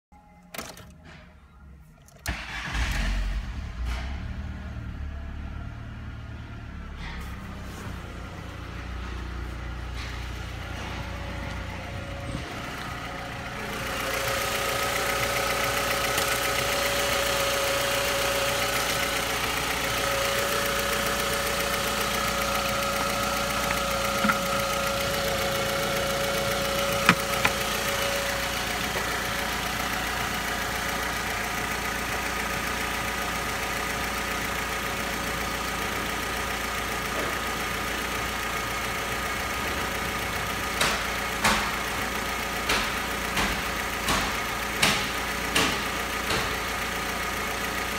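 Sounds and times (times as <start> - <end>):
car engine starting and idling: 0.2 - 47.9
engine whine: 2.2 - 36.3.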